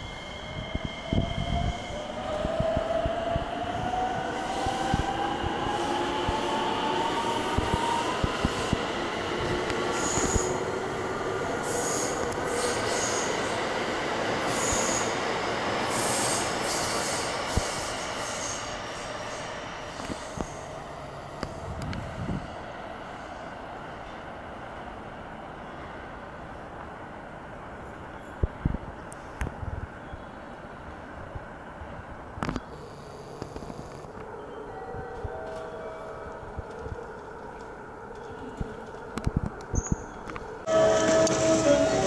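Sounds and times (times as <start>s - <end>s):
train running rumble: 40.6s - 42.0s.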